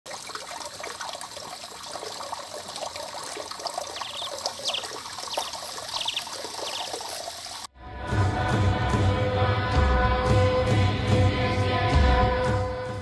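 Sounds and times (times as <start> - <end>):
water splashing from spout into pool: 0.1 - 7.7.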